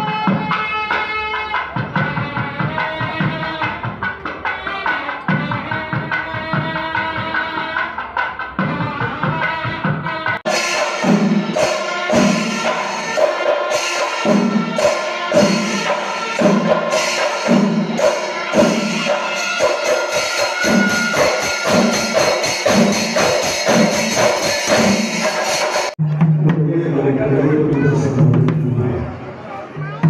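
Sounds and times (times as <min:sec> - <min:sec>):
drums beating: 0:00.0 - 0:29.2
jingling cymbals: 0:10.5 - 0:26.0.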